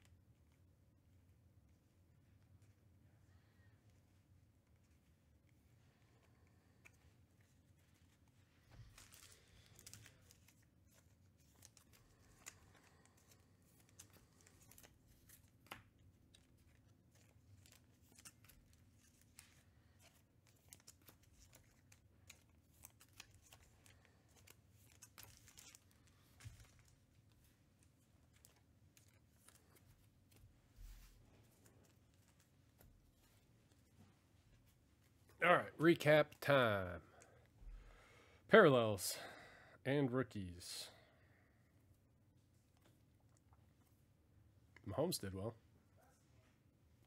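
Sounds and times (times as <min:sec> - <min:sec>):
trading cards and packaging rustling: 0:04.7 - 0:35.4.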